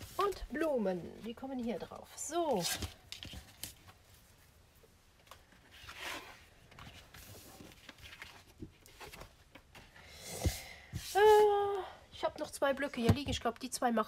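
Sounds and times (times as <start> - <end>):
paper rustling and sliding: 5.6 - 11.5.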